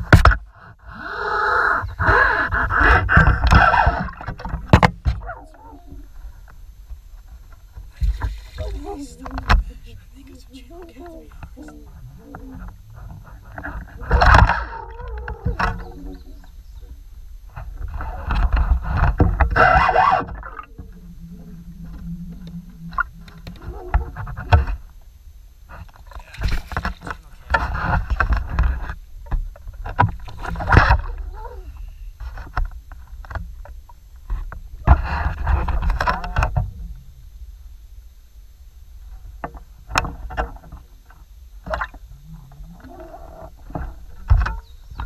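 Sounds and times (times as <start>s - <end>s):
low steady rumble: 0.0s - 45.0s
steady low hum: 0.0s - 45.0s
water splashing: 7.8s - 9.8s.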